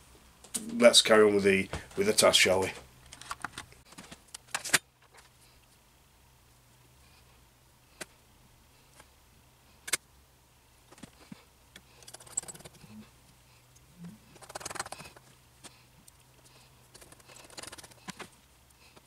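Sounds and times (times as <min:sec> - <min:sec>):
small metal clicks and rattles: 0:11.8 - 0:12.8.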